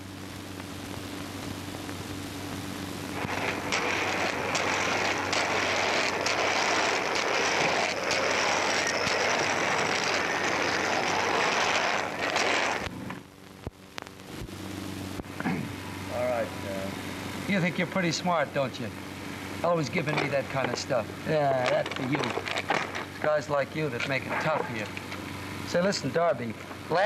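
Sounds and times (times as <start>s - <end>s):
roller skates rolling on hard floor: 3.2s - 13.2s, 20.1s - 23.2s.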